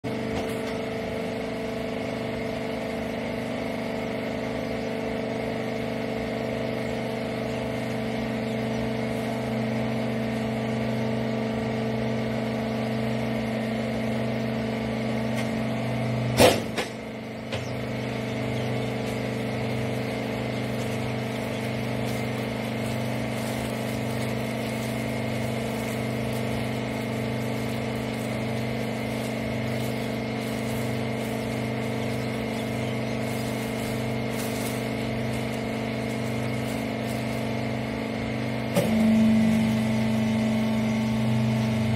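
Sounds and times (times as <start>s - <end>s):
hydraulic unit humming: 0.0s - 41.9s
sharp bang: 16.4s - 16.9s.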